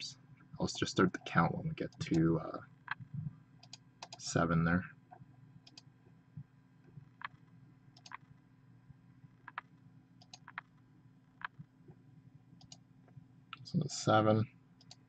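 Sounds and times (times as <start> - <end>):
low steady hum: 0.0 - 15.0
computer mouse clicks: 2.9 - 4.2, 5.6 - 5.9, 7.1 - 8.3, 9.4 - 10.8, 11.4 - 11.7, 12.6 - 12.8, 14.8 - 15.0.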